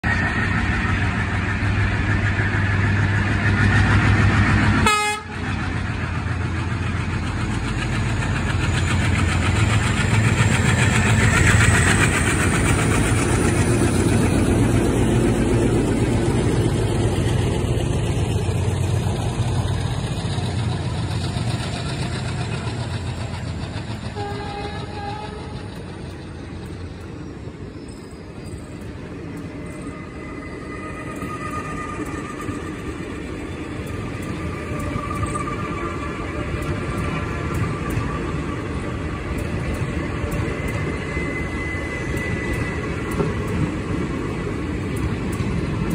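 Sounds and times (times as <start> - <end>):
diesel locomotive engines droning: 0.0 - 45.9
train coaches rolling: 0.0 - 45.9
train horn note: 4.8 - 5.5, 24.1 - 25.7.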